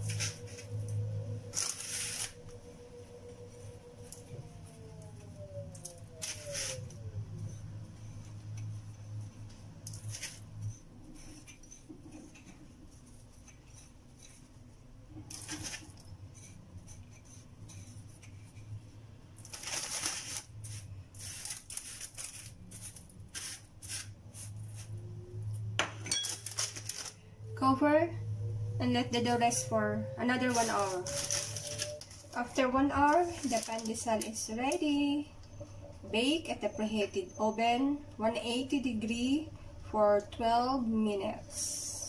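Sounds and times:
breadcrumbs rustling and scraping: 0:00.0 - 0:02.4, 0:06.2 - 0:07.0, 0:08.0 - 0:14.6, 0:15.2 - 0:25.0, 0:26.3 - 0:27.3, 0:30.3 - 0:34.9
low steady hum: 0:00.0 - 0:42.0.

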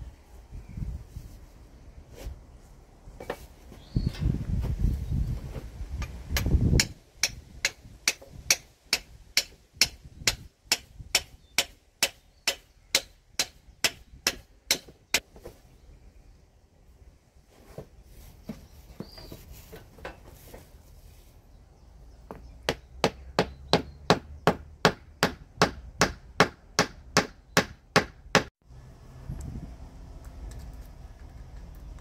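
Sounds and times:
hammer striking wood: 0:06.0 - 0:15.2, 0:22.3 - 0:28.5.

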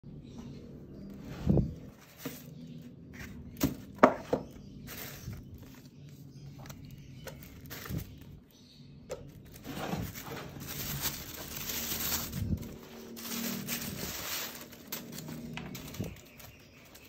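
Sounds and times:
tissue paper rustling: 0:09.5 - 0:17.0.

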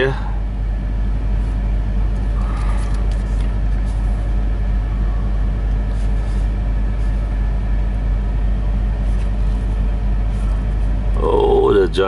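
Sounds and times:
diesel truck engine idling: 0:00.0 - 0:12.0.

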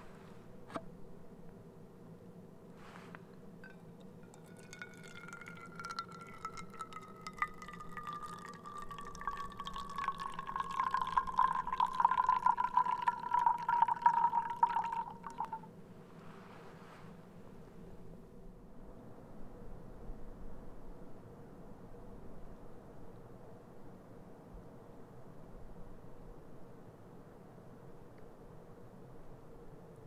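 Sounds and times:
water pouring into a mug: 0:03.6 - 0:15.7
water splashing: 0:03.6 - 0:15.7.

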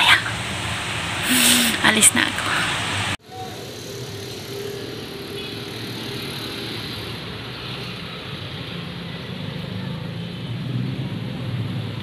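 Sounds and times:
street traffic rumble: 0:00.0 - 0:12.0
engine held tone: 0:03.3 - 0:06.8.

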